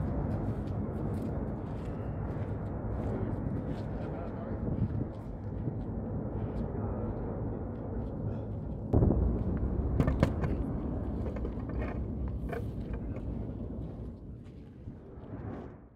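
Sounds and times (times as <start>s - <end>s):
volcano rumbling: 0.0s - 15.9s
volcanic blast: 9.0s - 11.3s.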